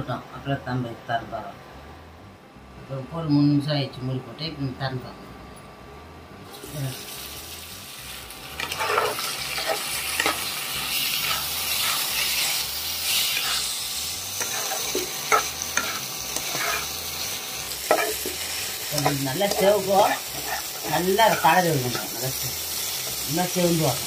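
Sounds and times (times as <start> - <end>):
vegetables sizzling in a pan: 6.5 - 24.0
spatula scraping a pan: 8.6 - 13.8, 14.4 - 23.2.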